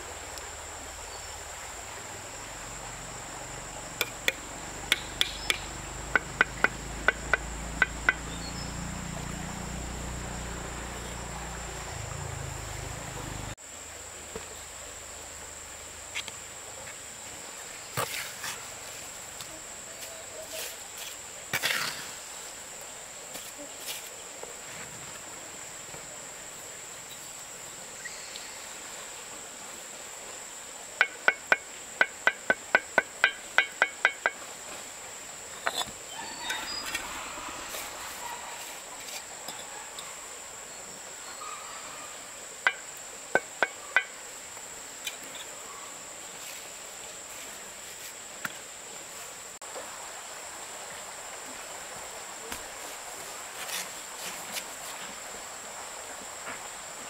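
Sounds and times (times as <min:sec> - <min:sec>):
high-pitched insect drone: 0:02.3 - 0:13.6
sharp knocks: 0:04.0 - 0:08.4, 0:31.0 - 0:34.4.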